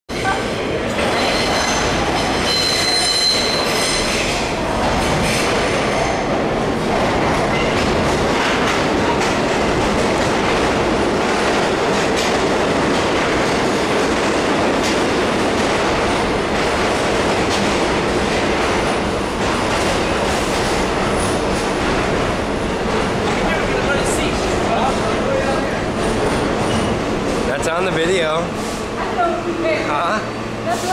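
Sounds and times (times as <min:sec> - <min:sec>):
subway train rumbling and rattling: 0:00.1 - 0:30.9
train brakes squealing: 0:01.0 - 0:04.4
train wheels clacking: 0:01.0 - 0:29.2.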